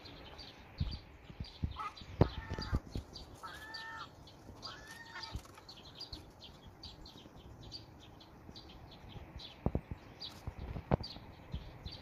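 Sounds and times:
gulls calling: 0.0 - 8.1.

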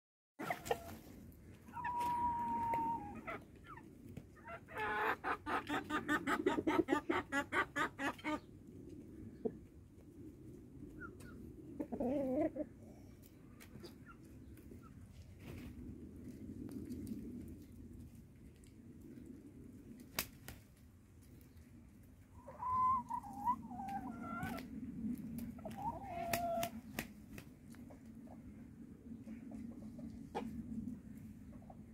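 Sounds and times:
rooster clucking: 4.4 - 8.5.

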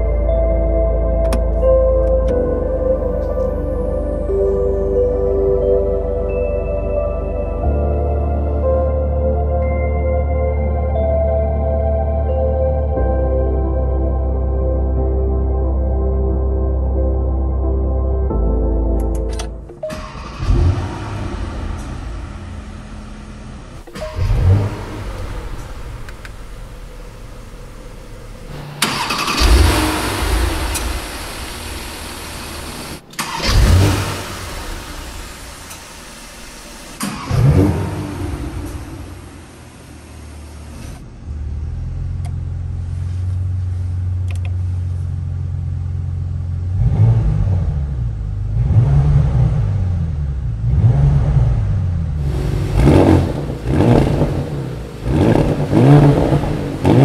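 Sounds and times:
car engine starting and revving: 19.0 - 57.0
car engine idling: 19.1 - 47.0, 51.7 - 57.0.

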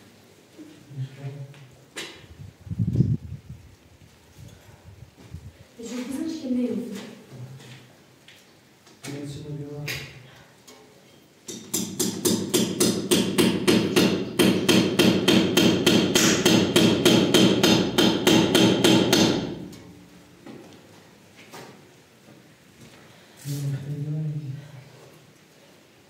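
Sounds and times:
hammer driving a nail: 11.5 - 19.8.

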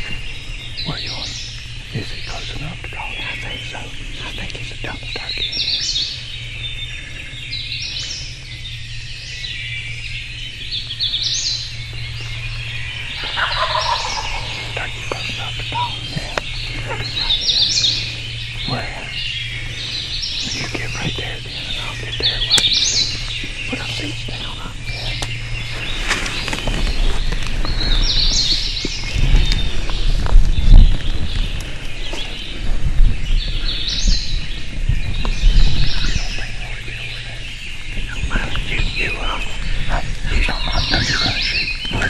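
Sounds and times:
songbirds chirping: 0.0 - 42.0
steady low hum: 0.0 - 42.0
footsteps in leaf litter: 25.3 - 32.6.

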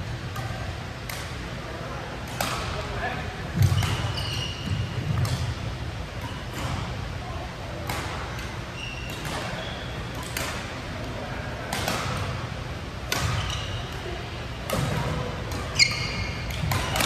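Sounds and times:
rackets hitting shuttlecock: 0.2 - 1.5, 2.2 - 7.1, 7.8 - 17.0
shoes squeaking on floor: 3.7 - 5.2, 8.7 - 10.1, 13.3 - 13.9, 15.7 - 17.0.

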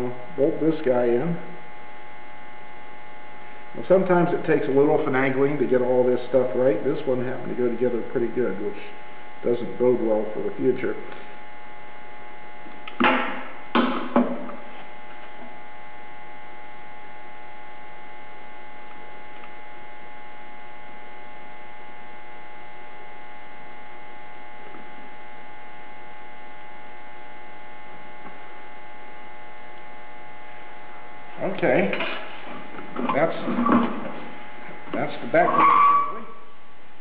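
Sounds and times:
steady electrical hum: 0.0 - 37.0.

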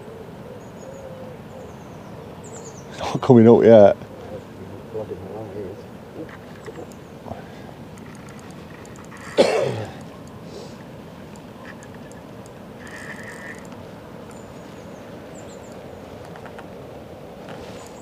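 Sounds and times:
river water rushing: 2.2 - 18.0
faint bird chirps: 5.6 - 16.5.

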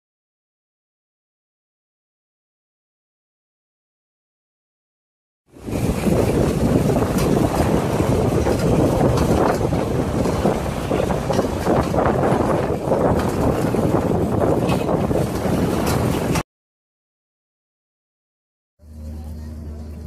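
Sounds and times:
truck engine and tyres rumbling: 5.5 - 16.4, 18.8 - 20.0
wind buffeting microphone: 5.5 - 16.4.

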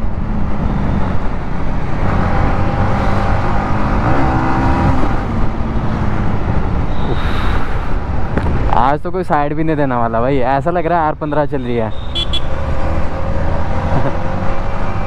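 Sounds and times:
wind noise: 0.0 - 9.0
road noise: 0.0 - 15.0.

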